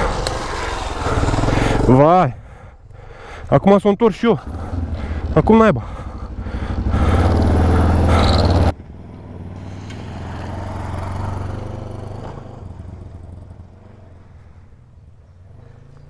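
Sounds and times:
motorcycle engine running: 0:00.0 - 0:02.2, 0:04.4 - 0:16.0
motorcycle riding past: 0:00.0 - 0:02.3, 0:04.4 - 0:16.0.

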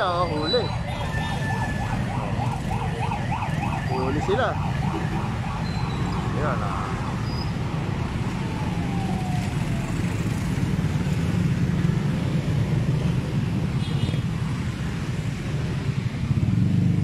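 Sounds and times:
road traffic rumble: 0:00.0 - 0:17.0.

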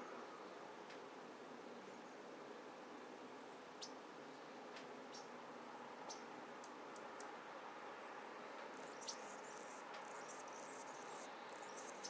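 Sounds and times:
steady background hiss: 0:00.0 - 0:12.0
small birds chirping: 0:05.1 - 0:05.4, 0:06.0 - 0:07.3, 0:08.8 - 0:12.0.

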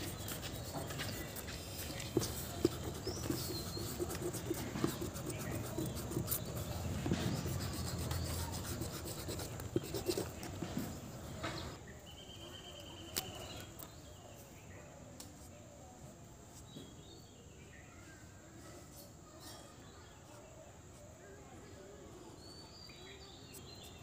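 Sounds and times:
eraser rubbing on paper: 0:00.0 - 0:11.1.

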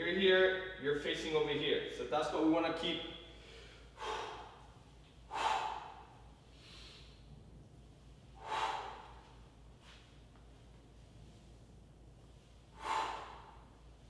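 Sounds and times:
man's sharp breaths of effort: 0:03.3 - 0:07.2, 0:08.4 - 0:10.0, 0:12.7 - 0:13.8.

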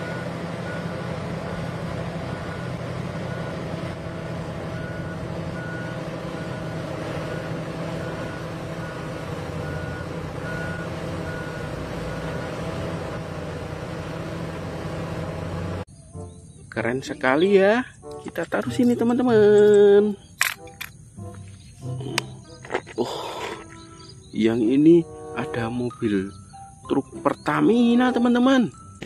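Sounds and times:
large diesel engine running: 0:00.0 - 0:15.9
truck reversing alarm beeping: 0:00.0 - 0:16.6, 0:23.3 - 0:29.0.

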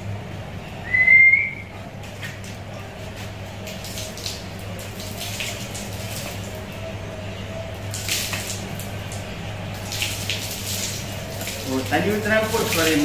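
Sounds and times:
steady low hum: 0:00.0 - 0:11.7
water splashing on concrete: 0:03.2 - 0:06.8, 0:07.8 - 0:13.0.

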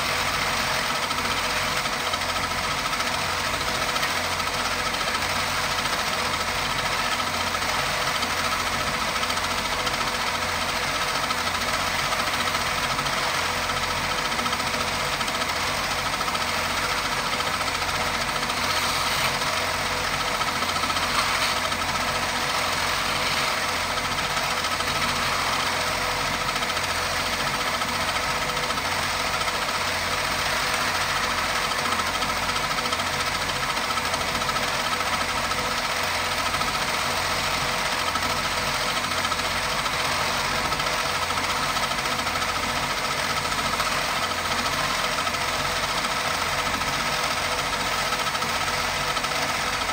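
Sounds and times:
wood lathe motor hum: 0:00.4 - 0:49.9
chisel scraping spinning wood: 0:16.3 - 0:26.0.

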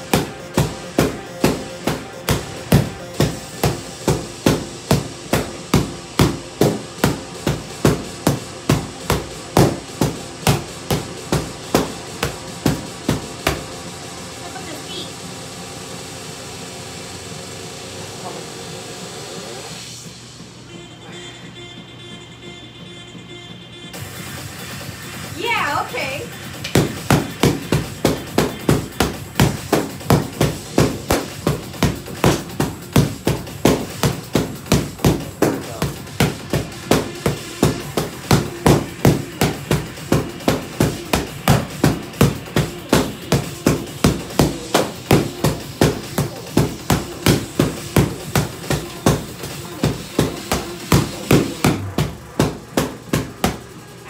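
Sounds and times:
sticks striking heavy bag: 0:00.0 - 0:13.6, 0:26.6 - 0:53.6.

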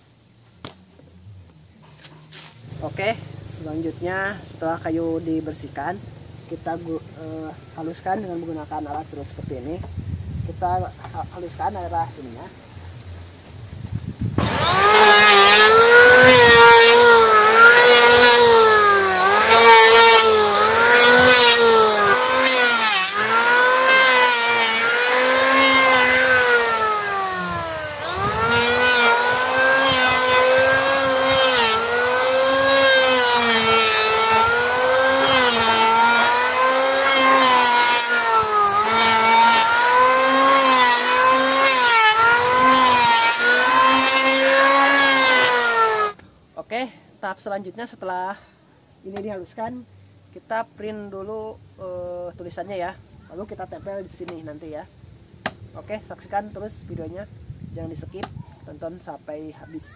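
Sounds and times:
electric hand planer on wood: 0:14.4 - 0:46.2.

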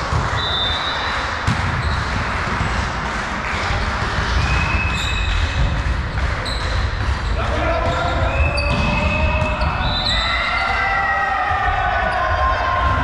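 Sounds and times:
sports hall hum: 0:00.0 - 0:13.0
volleyball hit: 0:01.4 - 0:10.0
shoes squeaking on court floor: 0:06.4 - 0:10.6.

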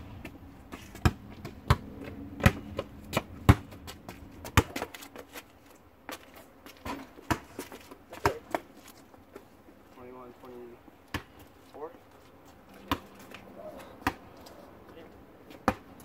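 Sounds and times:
basketball bouncing on asphalt: 0:00.2 - 0:09.5, 0:10.9 - 0:11.6, 0:12.4 - 0:14.6, 0:15.4 - 0:16.0.

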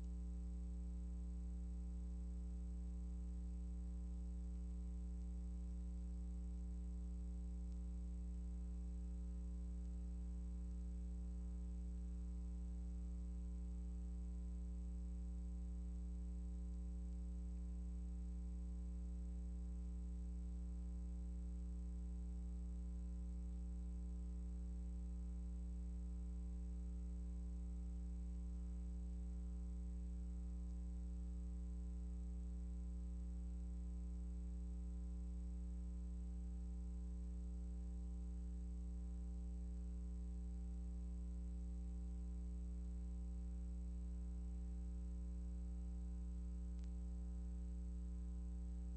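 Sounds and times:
faint high whine: 0:00.0 - 0:48.9.

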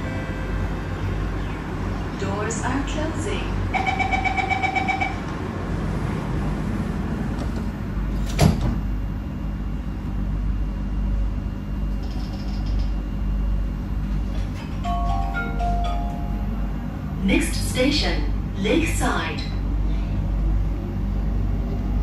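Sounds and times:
train low hum: 0:00.0 - 0:22.0
rapid pulsing warning beep: 0:03.6 - 0:05.2
train doors thudding shut: 0:07.3 - 0:09.0.

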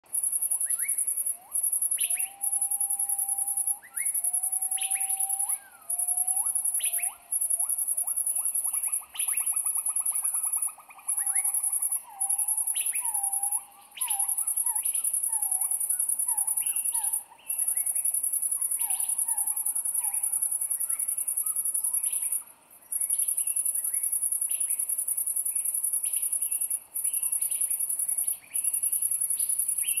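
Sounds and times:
bird whistles and chirps: 0:00.6 - 0:09.5, 0:10.1 - 0:18.0, 0:18.6 - 0:22.3.

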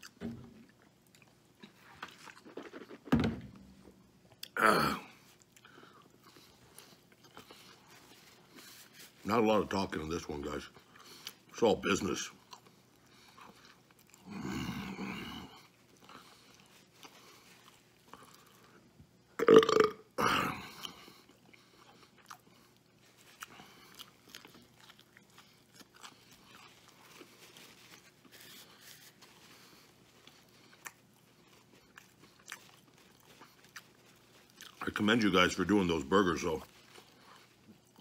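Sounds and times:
man chewing: 0:00.0 - 0:03.1, 0:05.2 - 0:09.2, 0:12.4 - 0:19.9, 0:20.6 - 0:34.8, 0:36.7 - 0:38.0
man burping: 0:04.5 - 0:05.1, 0:19.4 - 0:20.8.

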